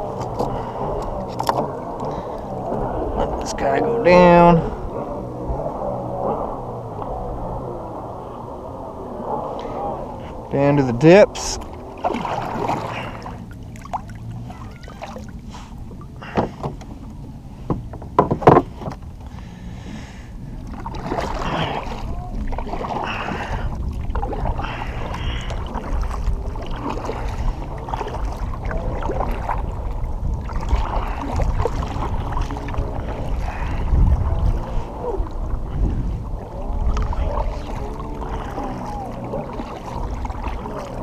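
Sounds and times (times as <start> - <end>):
kayak paddle splashing water: 0.0 - 7.7, 9.2 - 41.0
low rumble: 0.0 - 41.0
sharp knocks: 17.7 - 19.0.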